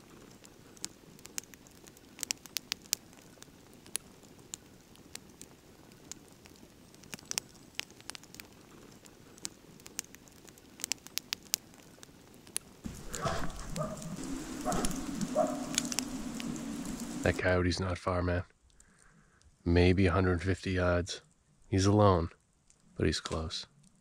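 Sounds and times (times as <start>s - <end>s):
campfire crackling and popping: 0.0s - 17.6s, 18.5s - 19.8s, 21.2s - 24.0s.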